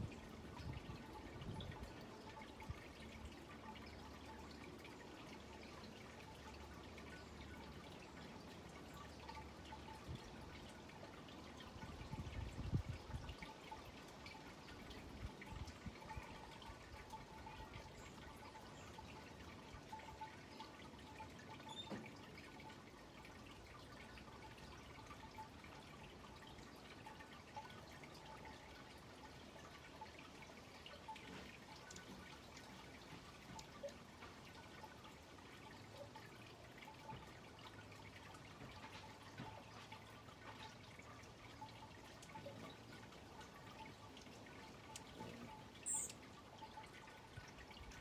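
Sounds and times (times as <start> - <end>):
soft ticks: 44.7 - 46.2
small chirps: 45.0 - 46.2.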